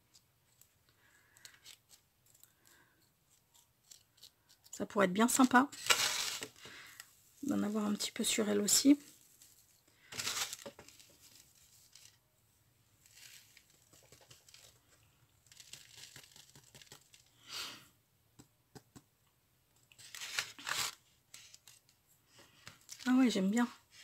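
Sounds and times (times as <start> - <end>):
paper rustling and crinkling: 5.3 - 8.1, 8.8 - 12.2, 13.0 - 17.3, 19.9 - 24.0.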